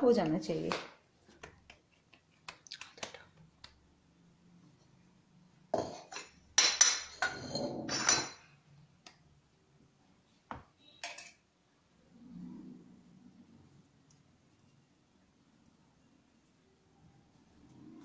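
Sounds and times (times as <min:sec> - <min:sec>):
metal containers clattering: 0:05.8 - 0:08.5.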